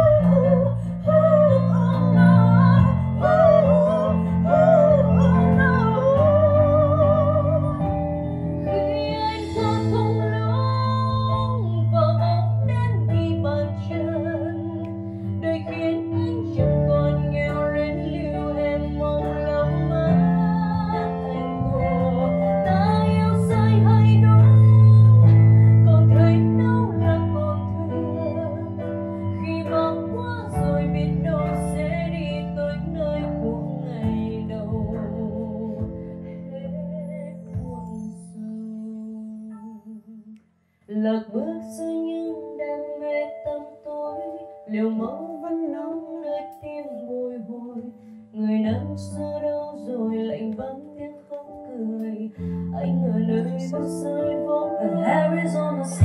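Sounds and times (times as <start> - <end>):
woman singing with vibrato: 0.0 - 8.1, 8.7 - 40.3, 40.9 - 56.0
live band playing a slow ballad: 0.0 - 38.2.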